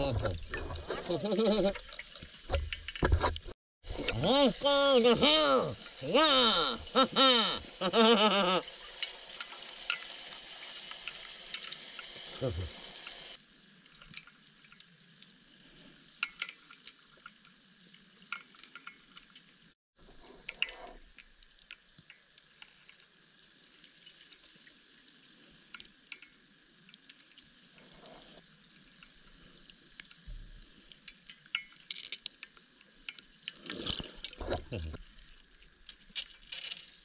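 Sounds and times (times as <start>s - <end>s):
underwater hiss: 5.7s - 13.4s
small clicks and crackles: 8.8s - 19.7s, 20.3s - 37.0s.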